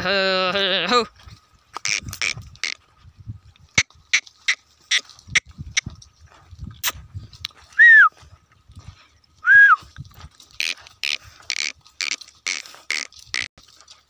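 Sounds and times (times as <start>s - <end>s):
person whistling loudly: 7.7s - 8.2s, 9.4s - 9.8s.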